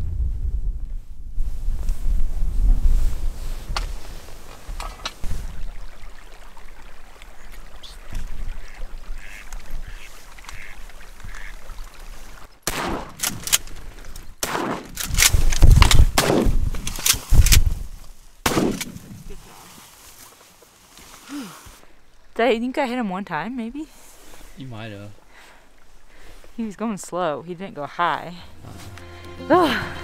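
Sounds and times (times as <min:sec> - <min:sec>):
shotgun shots: 0:12.6 - 0:13.6, 0:14.4 - 0:16.7, 0:18.4 - 0:19.1.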